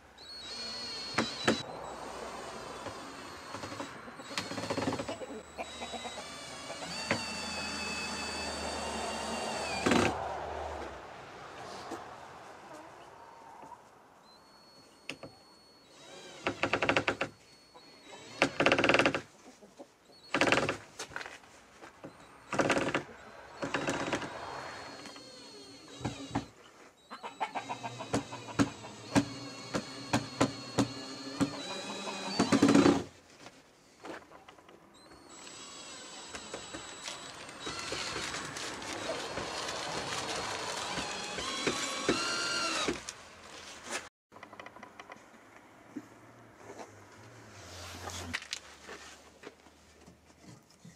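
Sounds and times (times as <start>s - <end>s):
cordless drill driving screws: 0.2s - 10.2s, 15.1s - 19.3s, 22.0s - 26.6s, 27.6s - 33.1s, 35.0s - 43.2s.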